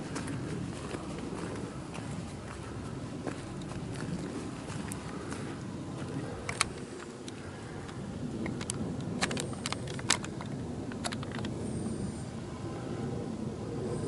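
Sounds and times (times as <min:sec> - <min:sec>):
footsteps on gravel: 0:00.0 - 0:06.9.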